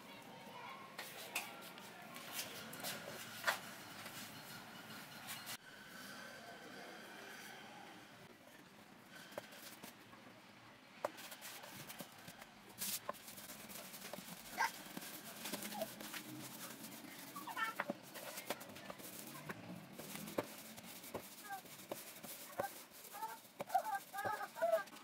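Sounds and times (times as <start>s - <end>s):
rolling pin rolling dough: 12.8s - 25.0s.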